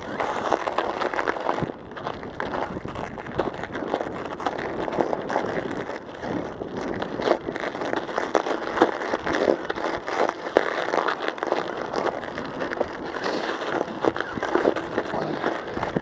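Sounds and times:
studded tires crunching on ice: 0.0 - 16.0.

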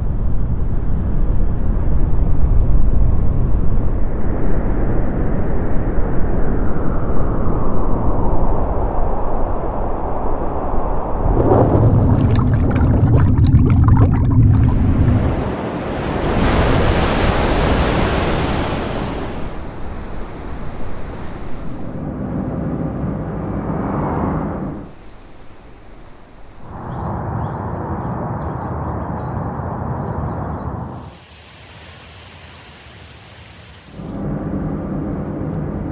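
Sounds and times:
rushing wind: 0.0 - 22.7, 23.9 - 31.2
deep underwater rumble: 8.0 - 15.5
rushing wash of surf: 8.3 - 22.1, 24.6 - 26.9
bubbles fizzing: 10.6 - 15.5, 16.1 - 22.0, 30.9 - 34.1.

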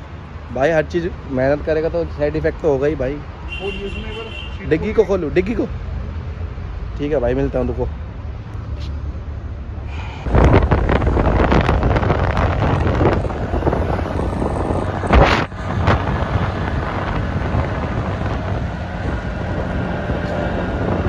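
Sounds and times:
road noise: 0.0 - 21.0
wind buffeting microphone: 10.2 - 21.0.

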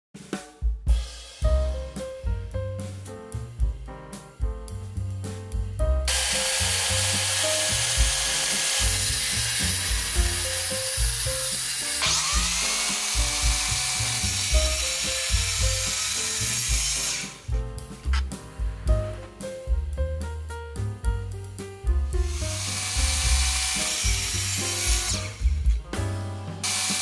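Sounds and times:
circular saw cutting wood: 6.1 - 17.5, 22.3 - 25.8, 26.6 - 27.0.

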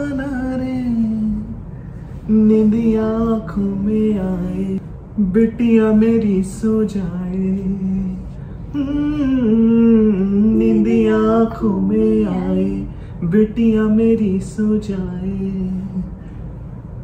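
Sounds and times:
woman and man singing: 5.4 - 16.1.

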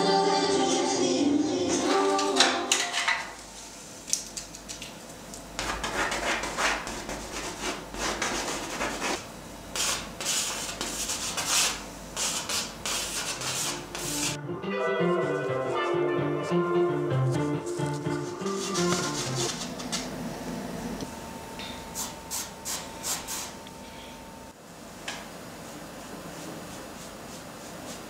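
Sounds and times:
painting tool scraping paint: 17.9 - 20.1.

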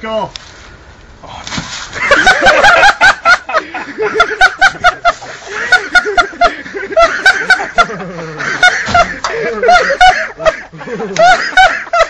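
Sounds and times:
person laughing heartily: 2.0 - 12.0
breaths: 9.2 - 9.6.

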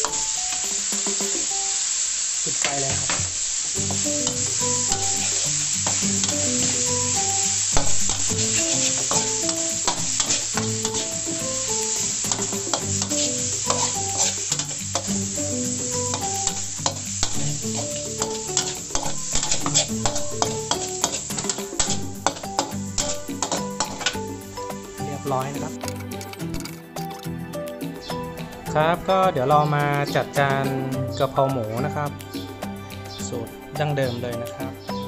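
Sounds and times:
background music: 0.0 - 2.0, 3.0 - 35.0
food sizzling in wok: 0.0 - 33.8
metal spatula scraping wok: 2.8 - 27.2.

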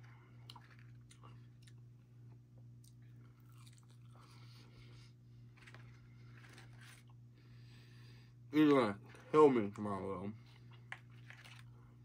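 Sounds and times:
chewing with soft crunches: 0.0 - 7.2, 10.4 - 12.0
steady low hum: 0.0 - 12.0.

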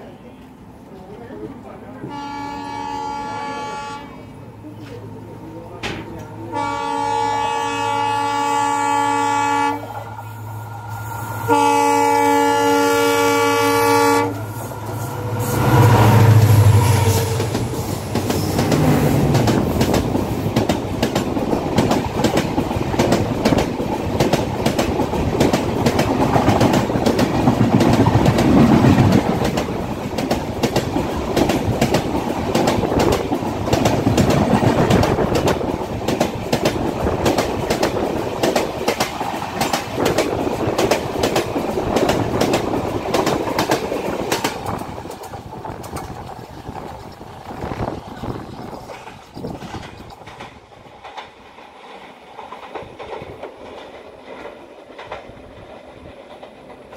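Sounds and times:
train rushing noise: 0.0 - 56.9
locomotive passing rumble: 4.2 - 56.9
wheels clattering over rail joints: 18.1 - 56.9.

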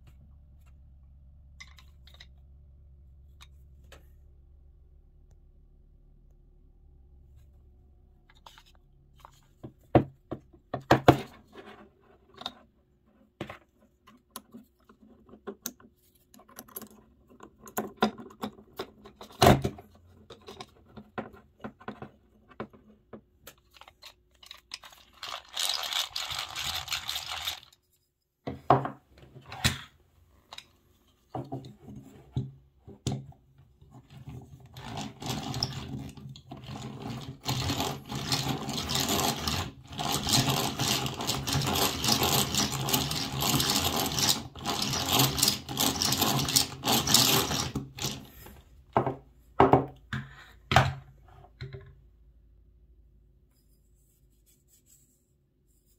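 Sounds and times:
hand drill gears whirring: 23.8 - 27.8, 34.8 - 48.5
hand drill boring into wood: 34.8 - 48.3.

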